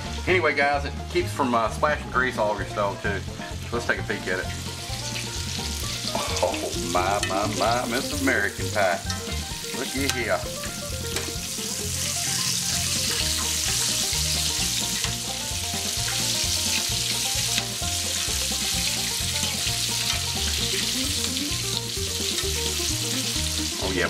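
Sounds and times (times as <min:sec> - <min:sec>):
background music with steady beat: 0:00.0 - 0:24.0
chicken frying in oil sizzling: 0:00.0 - 0:24.0.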